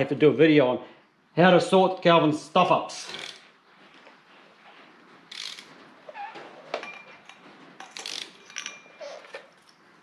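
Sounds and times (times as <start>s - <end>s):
hand tools clicking and clinking: 5.3s - 5.7s, 6.7s - 9.8s
ratchet clicking: 5.3s - 5.7s, 8.0s - 8.4s.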